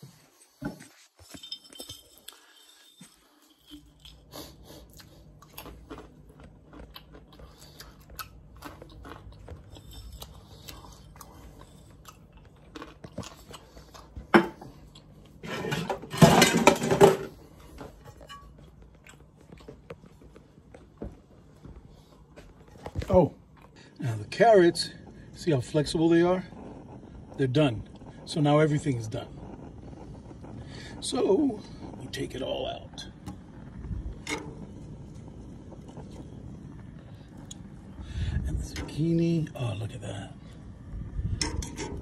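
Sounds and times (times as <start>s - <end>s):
low steady hum: 0.0s - 42.0s
dishes and glass jar clinking: 0.6s - 4.0s, 15.4s - 17.3s, 18.0s - 18.7s.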